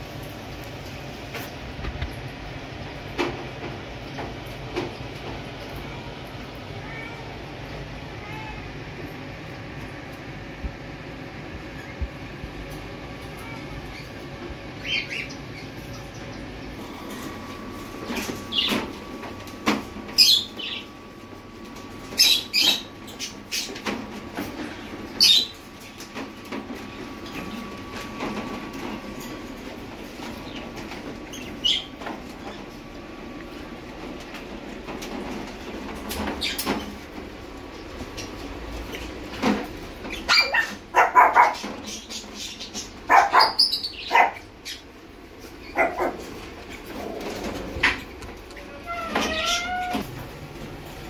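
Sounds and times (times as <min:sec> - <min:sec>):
puppy barks and yaps: 0:40.2 - 0:41.7, 0:43.1 - 0:44.4.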